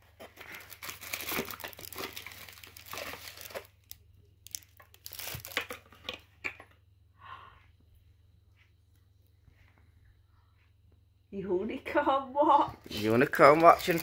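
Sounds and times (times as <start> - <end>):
packaging crinkling and tearing: 0.0 - 5.9, 12.9 - 14.0.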